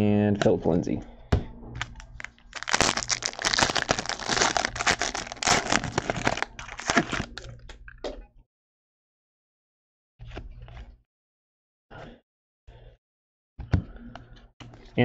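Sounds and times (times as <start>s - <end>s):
wrapper crinkling and tearing: 1.8s - 7.6s.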